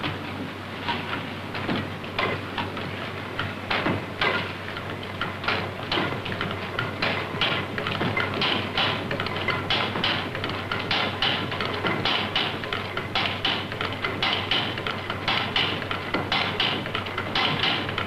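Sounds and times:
engine clattering knocks: 3.6s - 18.0s.

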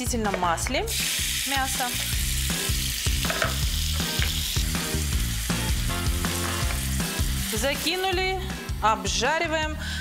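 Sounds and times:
meat sizzling in oil: 0.8s - 8.8s.

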